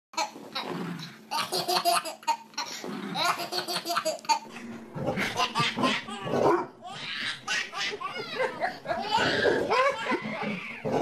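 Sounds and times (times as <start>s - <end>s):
baby laughing: 1.3s - 11.0s.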